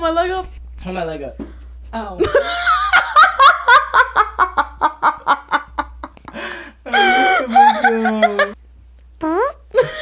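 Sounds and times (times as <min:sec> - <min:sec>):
people laughing hard: 0:02.3 - 0:08.6.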